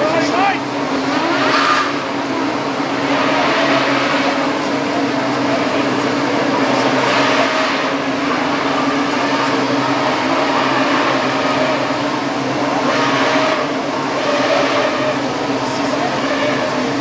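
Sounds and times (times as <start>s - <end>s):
racing car engines at high revs: 0.0s - 17.0s.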